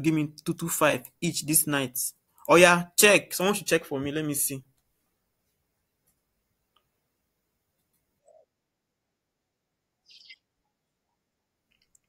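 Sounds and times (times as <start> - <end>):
faint high-pitched chirp: 10.0 - 10.5.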